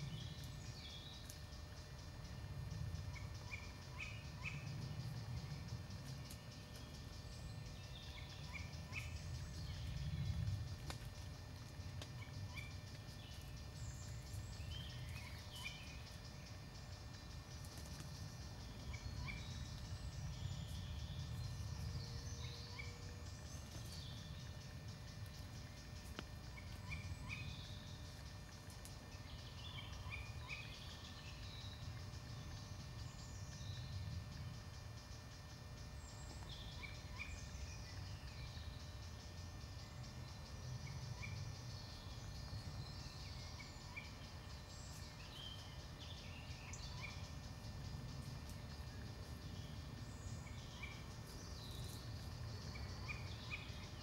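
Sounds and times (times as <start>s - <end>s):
small birds chirping: 0.0s - 54.0s
steady low rumble: 1.7s - 30.9s.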